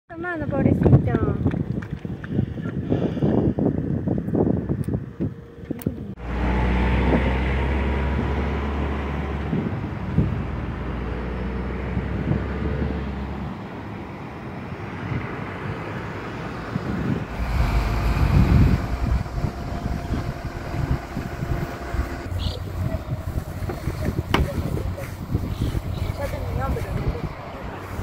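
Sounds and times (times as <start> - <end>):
wind rumbling on microphone: 0.1 - 28.0
car engine running: 17.3 - 28.0.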